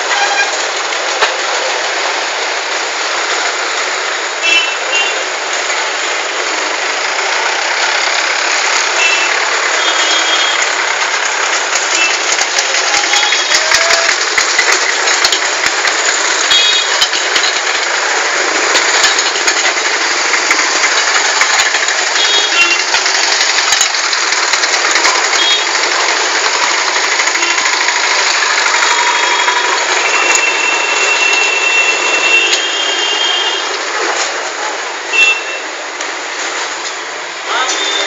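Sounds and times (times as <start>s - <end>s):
vehicle engines rattling: 0.0s - 38.0s.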